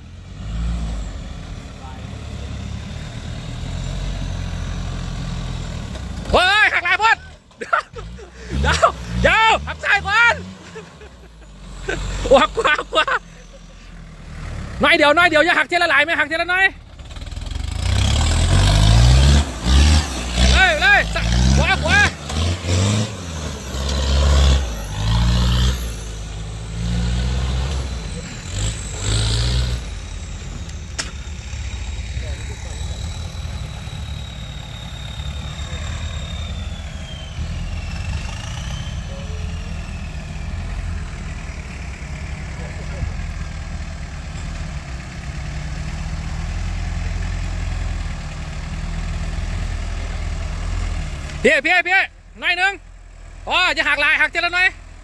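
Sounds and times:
off-road vehicle engine revving: 0.0 - 55.0.

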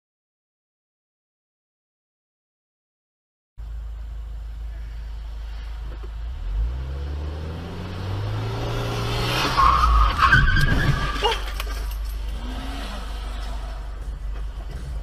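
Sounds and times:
low hum of moving car: 3.6 - 15.0
car engine revving: 5.2 - 15.0
tyres squealing: 9.4 - 15.0.

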